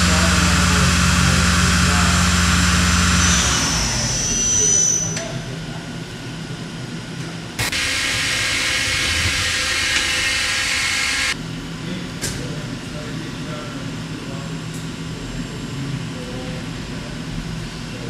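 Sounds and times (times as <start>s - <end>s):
lathe low hum: 0.0s - 11.4s
lathe running with high whine: 0.0s - 11.4s.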